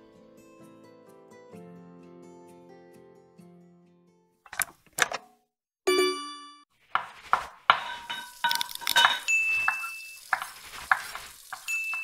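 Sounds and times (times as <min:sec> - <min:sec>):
utensils and dishes clattering: 0:07.7 - 0:12.0.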